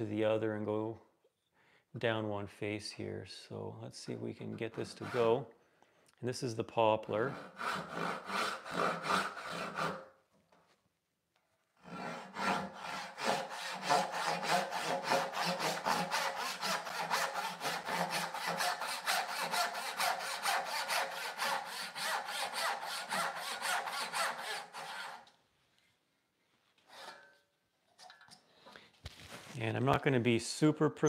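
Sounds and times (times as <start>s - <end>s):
hand saw rasping through wood: 4.5s - 5.5s, 7.1s - 10.1s, 11.8s - 25.3s.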